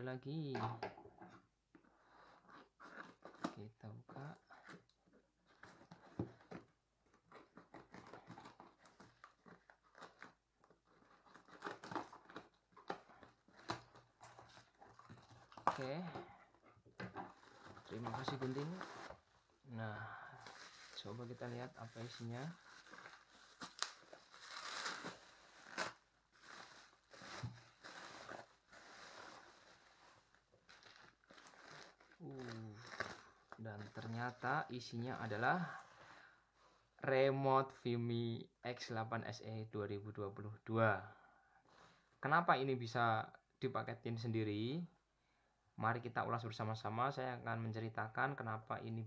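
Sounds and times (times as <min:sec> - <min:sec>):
bubble wrap and plastic rustling: 0:05.4 - 0:16.2, 0:17.2 - 0:35.9.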